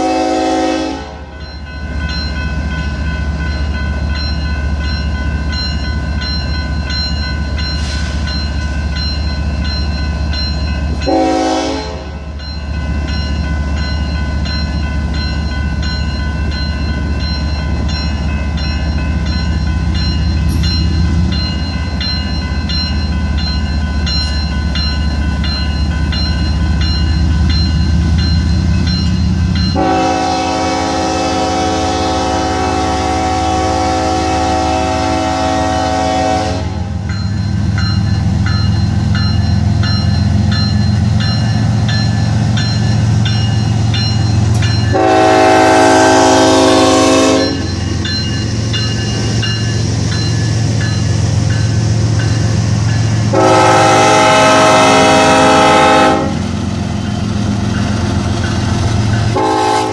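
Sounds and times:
locomotive horn blasts: 0.0s - 1.3s, 11.0s - 12.2s, 29.7s - 36.9s, 44.9s - 47.7s, 53.3s - 56.5s, 59.3s - 59.9s
crossing warning bell ringing: 0.0s - 59.9s
diesel locomotive rumble: 0.0s - 59.9s.

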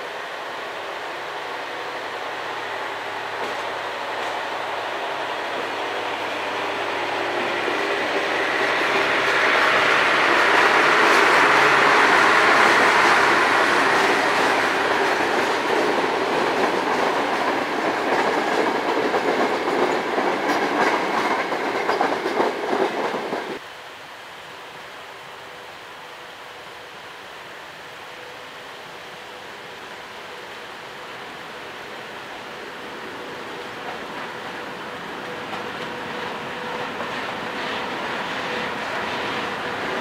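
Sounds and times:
diesel locomotive engine droning: 0.0s - 40.0s
train wheels clattering over rail joints: 10.6s - 23.6s.

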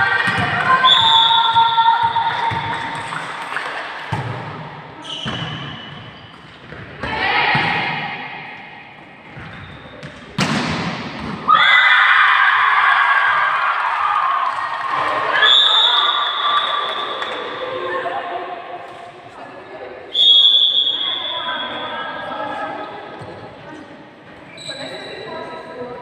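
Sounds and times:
players' voices: 0.0s - 26.0s
people shouting: 7.0s - 8.0s
volleyball being struck: 10.4s - 11.5s.

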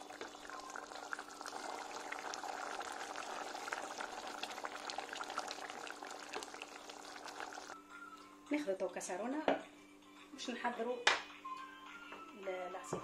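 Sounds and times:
sauce bubbling in a pan: 0.0s - 7.8s.

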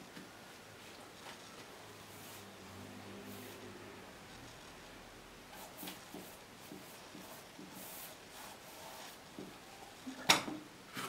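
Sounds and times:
paintbrush swishing on canvas: 1.2s - 2.6s, 5.5s - 10.0s.

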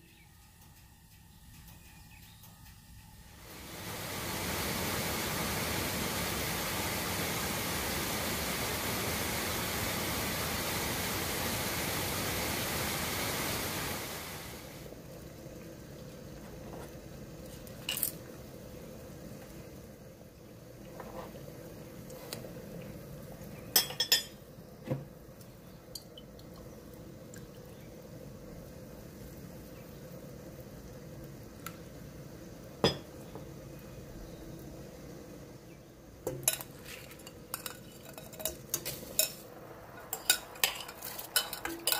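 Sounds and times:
water simmering in a pot: 3.3s - 41.9s
waterfall rushing: 3.5s - 14.9s.

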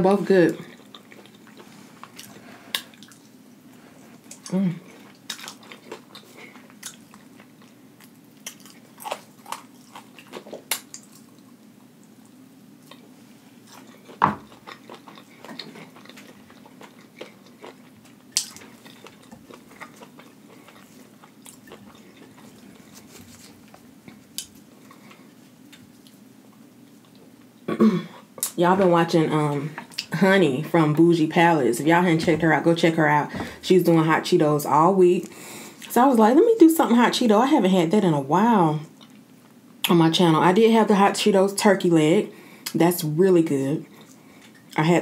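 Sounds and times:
faint low hum: 0.0s - 45.0s
person chewing: 0.6s - 27.4s.

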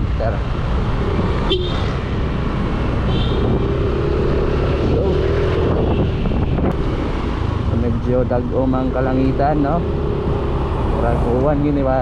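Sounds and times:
wind rushing over microphone: 0.6s - 12.0s.

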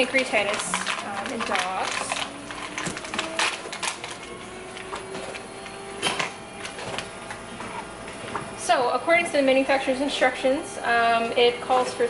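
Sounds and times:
gloved hands handling packaging: 0.0s - 8.0s
faint machine whine: 0.0s - 12.0s.

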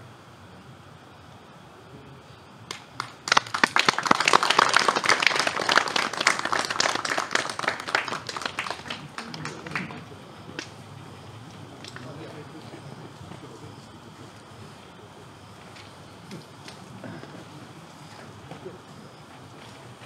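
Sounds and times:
audience applauding: 2.7s - 10.8s.

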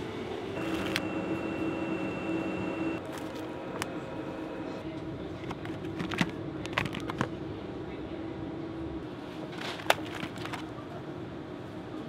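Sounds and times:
refrigerated display cases humming: 0.0s - 12.0s.

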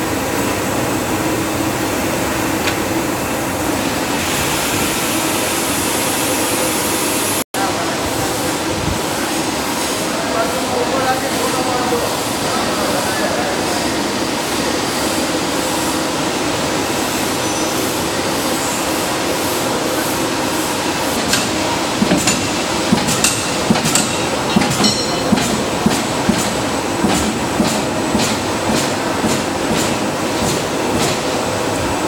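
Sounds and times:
power press sharp clacks: 21.2s - 31.4s.

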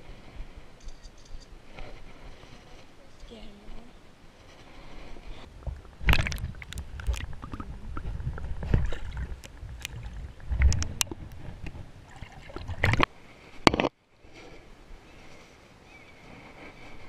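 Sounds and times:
muffled underwater water sloshing: 5.5s - 13.1s
sharp clicks in water: 5.7s - 13.1s.

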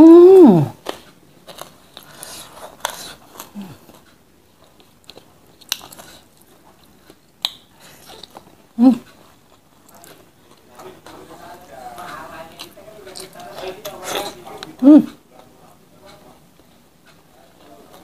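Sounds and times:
person humming: 0.0s - 0.8s, 8.8s - 9.1s, 14.8s - 15.2s
chewing and crunching: 0.8s - 14.8s.

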